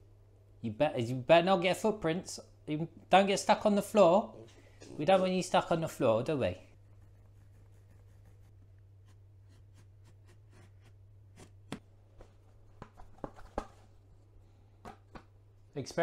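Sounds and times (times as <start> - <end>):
scratchy scoring strokes: 6.8 - 11.0.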